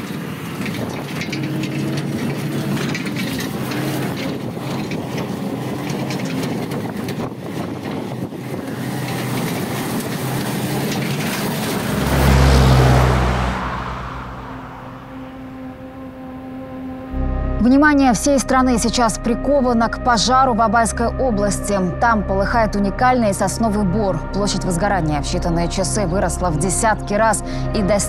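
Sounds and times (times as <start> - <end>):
vehicle engine running: 0.0 - 28.0
rushing noise: 8.4 - 17.2
low rumble: 11.2 - 28.0.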